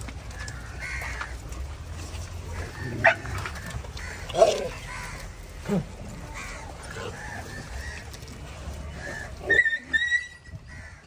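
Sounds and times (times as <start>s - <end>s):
dogs yelping: 2.5s - 8.2s, 9.0s - 10.6s.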